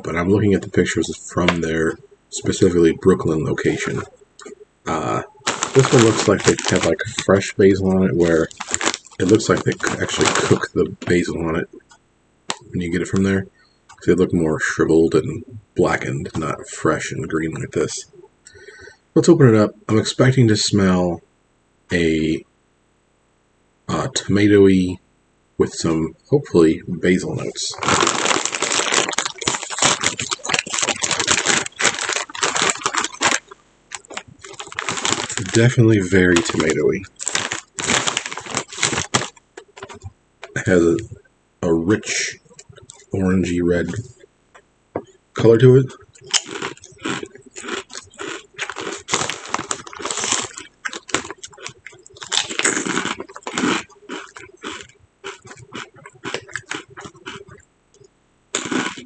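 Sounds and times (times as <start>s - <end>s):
chewing potato chips: 3.8s - 11.3s, 27.4s - 40.7s, 45.9s - 59.0s
plastic bag crinkling: 4.9s - 11.3s, 27.4s - 40.7s, 46.1s - 57.5s.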